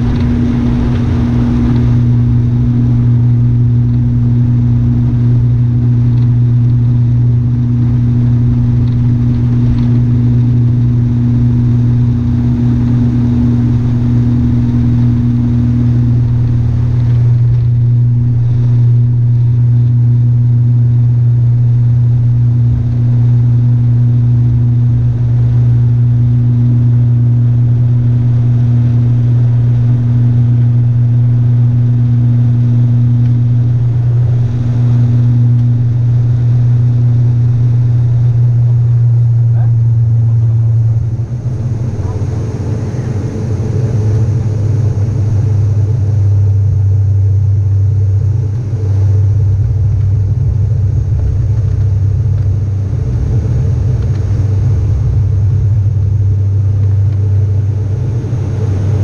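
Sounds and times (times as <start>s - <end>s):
turboprop engines droning: 0.0s - 59.0s.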